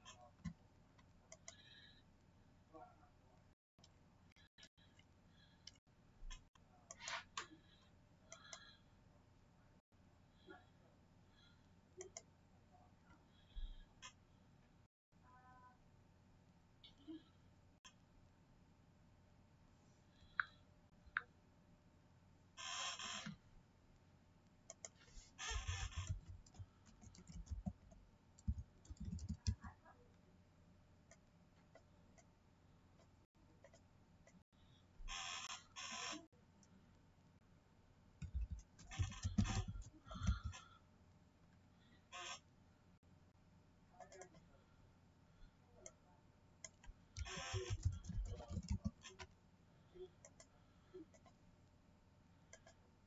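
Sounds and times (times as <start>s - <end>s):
small clicks and scratching: 24.7s - 29.8s, 38.2s - 40.7s, 46.6s - 49.4s.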